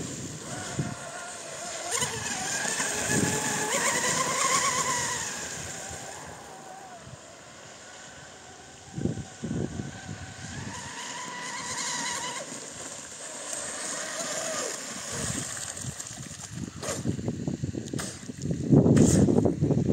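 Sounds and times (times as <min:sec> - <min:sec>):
toy boat motor whining: 0:00.0 - 0:15.7.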